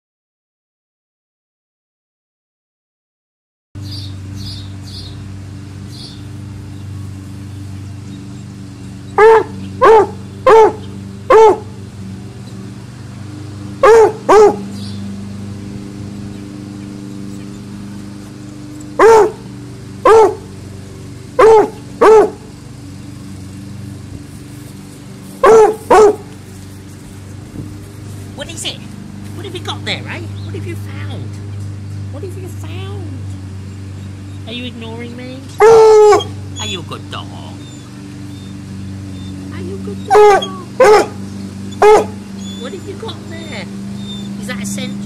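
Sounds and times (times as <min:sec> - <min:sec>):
dog barking: 0:09.2 - 0:11.7, 0:13.8 - 0:14.7, 0:19.0 - 0:20.5, 0:21.4 - 0:22.4, 0:25.4 - 0:26.3, 0:35.6 - 0:36.8, 0:40.1 - 0:42.2.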